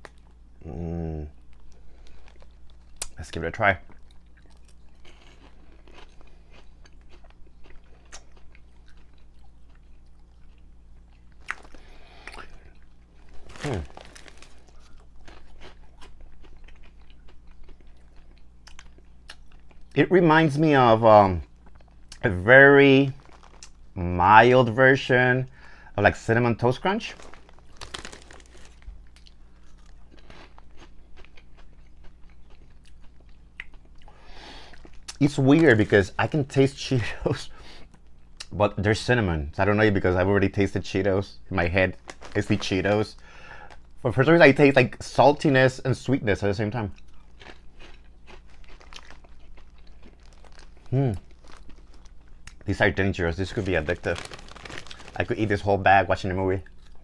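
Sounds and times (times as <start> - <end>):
person chewing crunchy snacks: 1.4 - 3.2, 3.8 - 19.9, 23.0 - 24.0, 27.0 - 36.4, 41.9 - 44.0, 47.0 - 55.6, 56.6 - 57.0.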